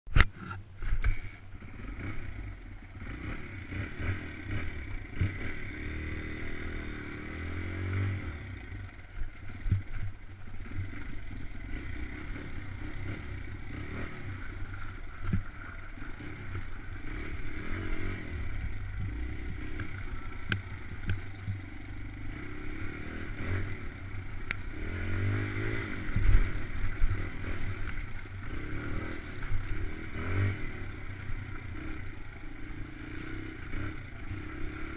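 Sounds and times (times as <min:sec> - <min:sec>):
dirt bike engine revving: 0:00.4 - 0:34.9
bike rattles and knocks: 0:09.2 - 0:11.0.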